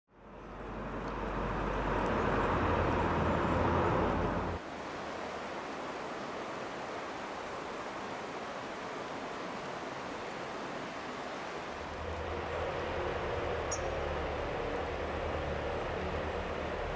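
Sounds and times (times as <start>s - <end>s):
steady rushing noise: 0.5s - 16.9s
distant freight train rumble: 11.8s - 16.9s.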